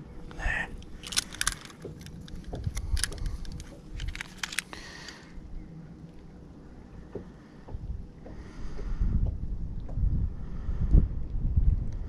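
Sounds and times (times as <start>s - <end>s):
wind rumble on microphone: 0.0s - 4.6s, 5.3s - 12.0s
metallic clicks and clinks: 1.0s - 4.8s.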